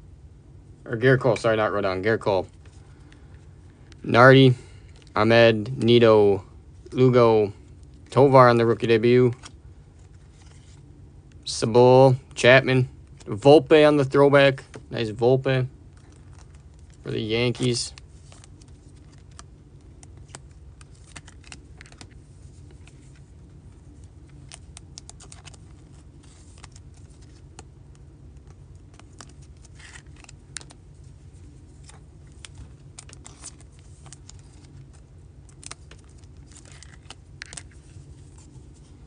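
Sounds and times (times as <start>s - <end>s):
steady low hum: 0.0s - 39.0s
cards clicking and flicking: 16.0s - 23.2s, 24.3s - 30.8s, 31.8s - 38.5s
wrapper rustling: 28.9s - 39.0s.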